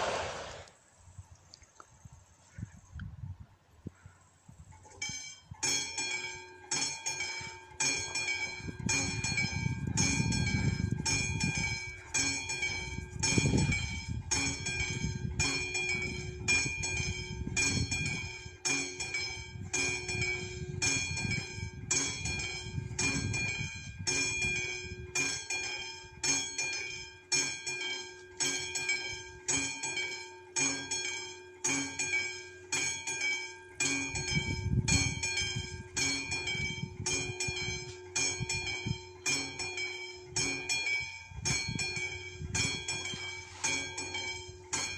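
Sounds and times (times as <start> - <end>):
level crossing bell ringing: 5.0 - 44.9.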